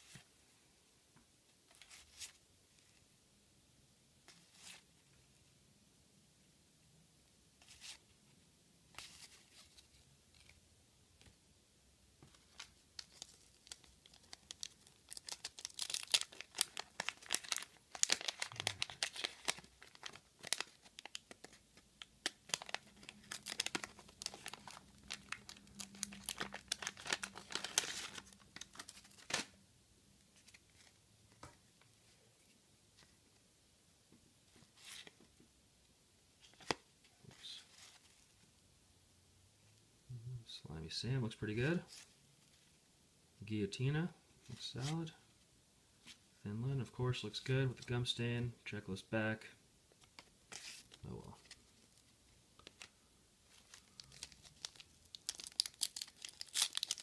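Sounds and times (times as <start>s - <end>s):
wax-paper wrapper tearing and crinkling: 12.5s - 29.5s, 50.1s - 57.0s.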